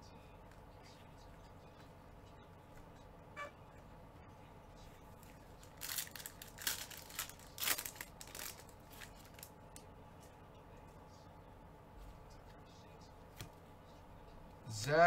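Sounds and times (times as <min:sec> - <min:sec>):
foil wrapper tearing and crinkling: 0:05.6 - 0:09.5.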